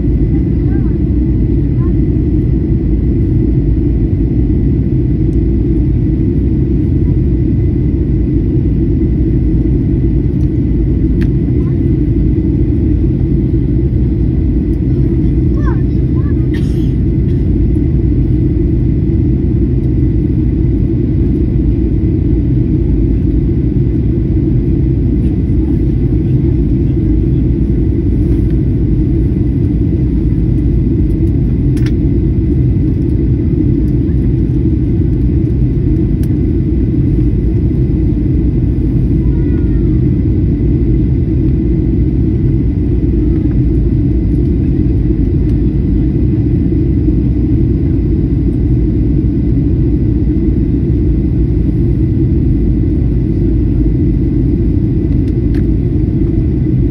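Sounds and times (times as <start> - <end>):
airliner cabin roar: 0.0 - 56.9.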